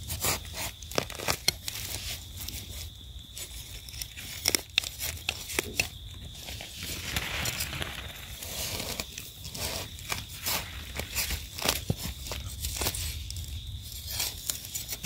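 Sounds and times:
dry leaves crackling: 3.9 - 15.0.

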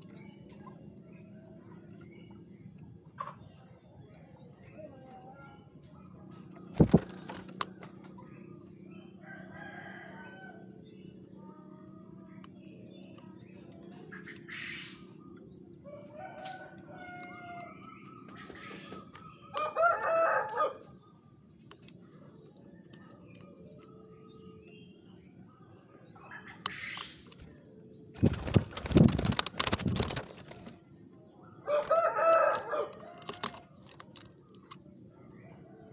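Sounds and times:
birds chirping: 0.0 - 35.9
rooster crowing: 19.5 - 20.8, 31.6 - 33.4.

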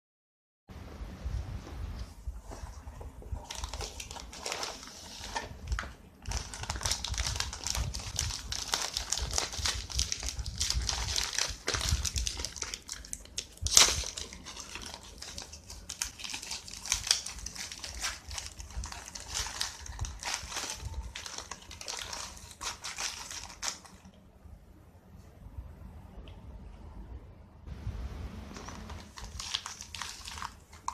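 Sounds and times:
foil packet crinkling and tearing: 3.4 - 24.1, 28.6 - 30.9.

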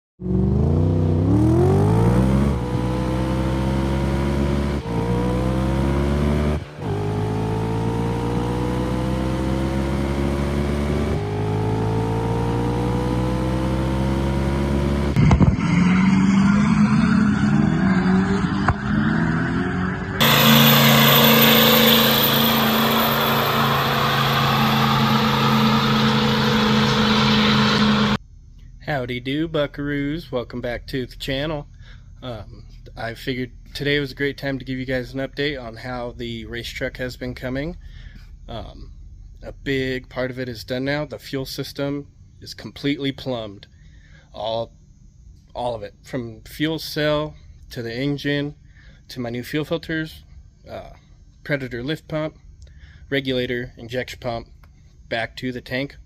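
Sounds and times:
engine running at steady speed: 0.2 - 15.7, 19.9 - 28.7
engine accelerating through gears: 0.2 - 28.2.

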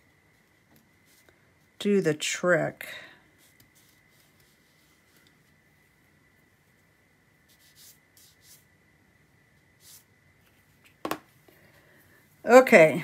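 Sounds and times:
paintbrush strokes on paper: 0.0 - 1.8, 3.2 - 8.8, 9.5 - 10.8.

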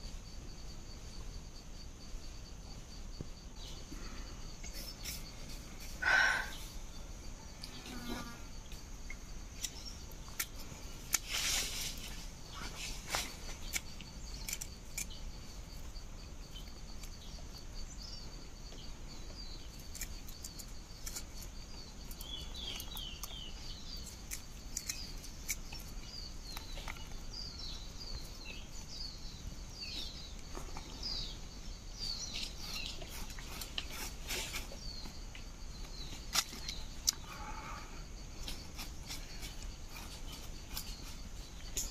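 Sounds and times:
crickets droning: 0.0 - 41.9
small bird chirping: 3.2 - 41.9.

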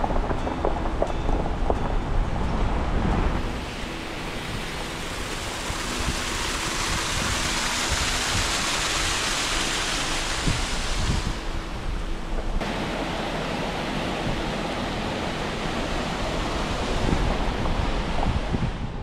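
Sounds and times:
waterfall splashing on rock: 3.4 - 11.6.

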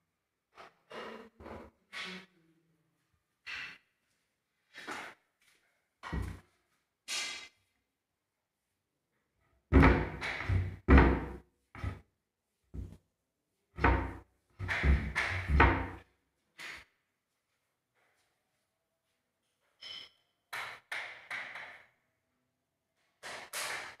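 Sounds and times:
dull thumps and knocks: 9.7 - 12.0, 13.8 - 16.0.

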